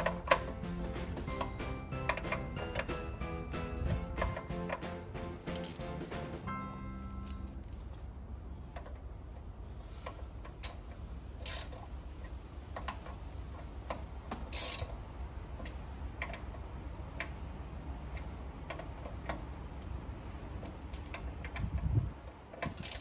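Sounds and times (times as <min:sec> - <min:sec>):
low background rumble: 0:03.8 - 0:22.3
ratchet rasps: 0:10.0 - 0:11.9, 0:12.7 - 0:15.0, 0:22.5 - 0:23.0.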